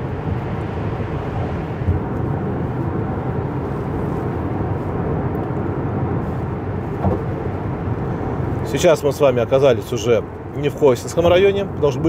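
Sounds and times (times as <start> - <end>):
car road and engine noise: 0.0 - 12.0
brief thump: 7.0 - 7.3.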